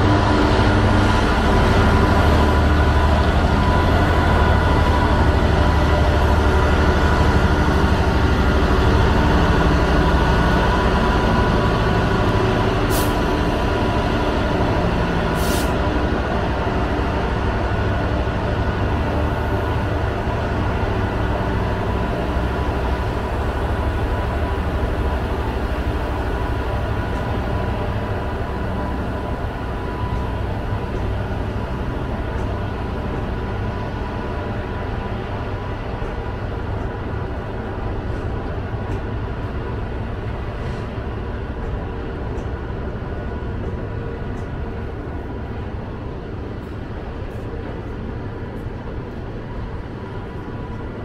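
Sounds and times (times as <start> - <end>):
diesel locomotive engine passing: 0.0 - 51.0
wagons rumbling on rails: 0.0 - 51.0.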